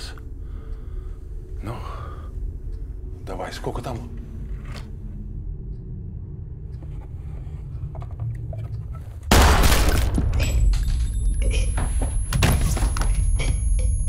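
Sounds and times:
low steady drone: 0:00.0 - 0:09.6
high steady ringing tone: 0:10.6 - 0:14.0.

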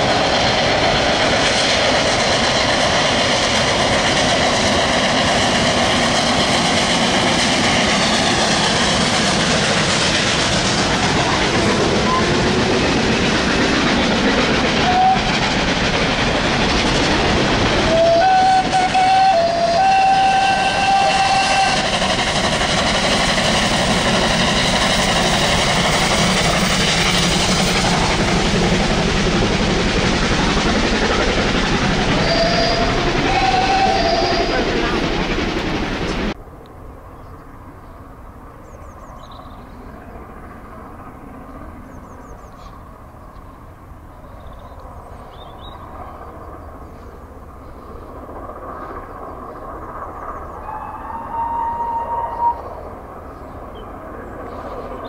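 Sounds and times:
train running: 0:00.0 - 0:55.0
train whistle: 0:14.8 - 0:15.4, 0:17.9 - 0:22.0, 0:32.2 - 0:34.7, 0:50.6 - 0:52.8.

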